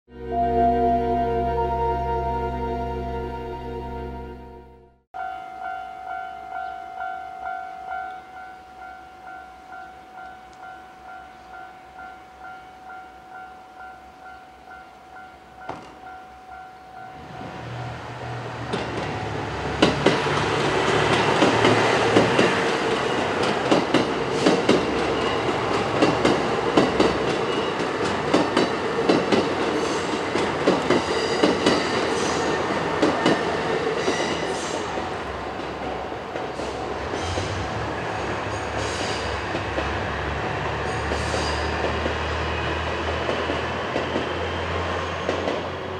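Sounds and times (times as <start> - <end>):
level crossing warning bell: 0.1 - 17.6
diesel train engines: 16.9 - 45.9
train wheels clattering over rail joints: 18.7 - 34.5.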